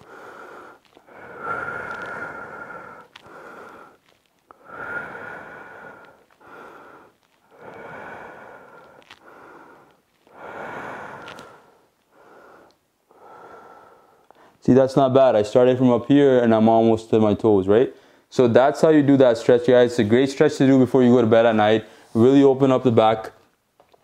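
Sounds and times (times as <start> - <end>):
man breathing deeply: 0.0 - 14.6.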